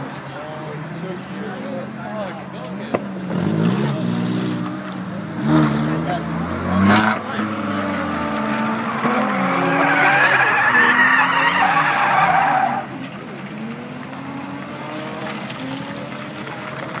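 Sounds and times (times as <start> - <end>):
car engine revving: 0.0 - 17.0
tyres squealing: 8.4 - 13.0.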